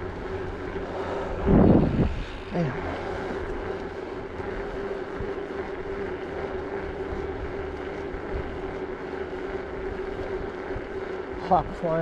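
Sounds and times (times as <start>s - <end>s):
wind rushing over microphone: 0.0s - 6.1s
bicycle tyre noise: 0.0s - 12.0s
steady hum: 0.0s - 12.0s.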